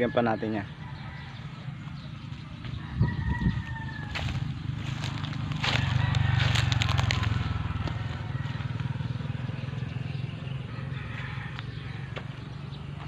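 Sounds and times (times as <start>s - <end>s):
footsteps crunching on dry leaves: 1.8s - 9.0s.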